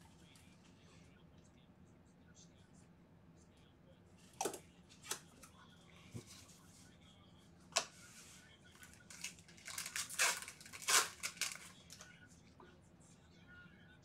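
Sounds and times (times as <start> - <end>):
foil wrapper crinkling and tearing: 8.8 - 12.0.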